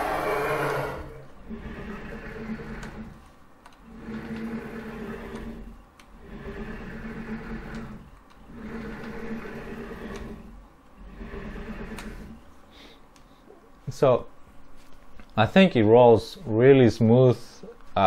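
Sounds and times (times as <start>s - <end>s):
servo motor whine: 0.0s - 12.5s.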